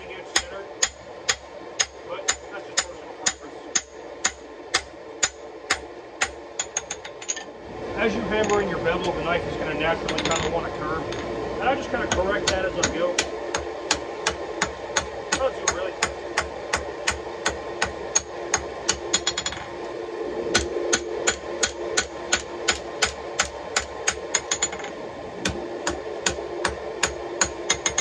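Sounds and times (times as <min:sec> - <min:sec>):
hammer striking metal on anvil: 0:20.6 - 0:28.0.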